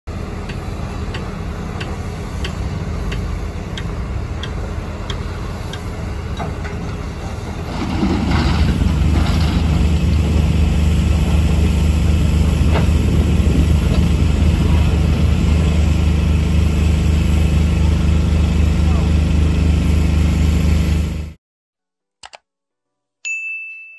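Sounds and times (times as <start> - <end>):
diesel engines working: 0.1 - 21.4
regular engine ticking: 0.4 - 7.0.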